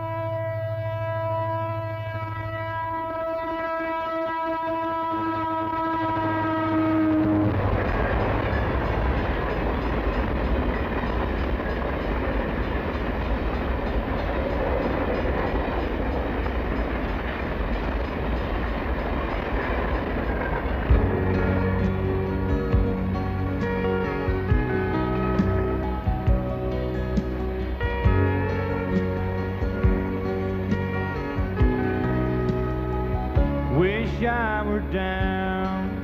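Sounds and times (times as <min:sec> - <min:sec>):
train horn: 0:00.0 - 0:10.1, 0:19.6 - 0:34.6
train cars rumbling past: 0:00.0 - 0:36.0.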